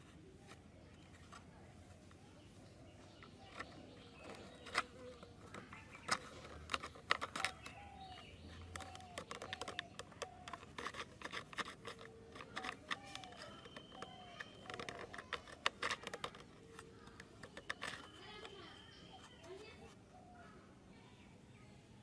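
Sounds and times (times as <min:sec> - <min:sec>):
bird calling: 0:02.0 - 0:20.7
fingers tapping small parts: 0:03.2 - 0:19.0.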